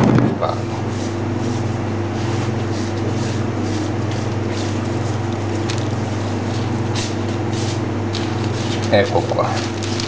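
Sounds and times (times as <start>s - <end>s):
low mechanical hum: 0.0s - 10.0s
hands rubbing raw meat: 0.7s - 10.0s.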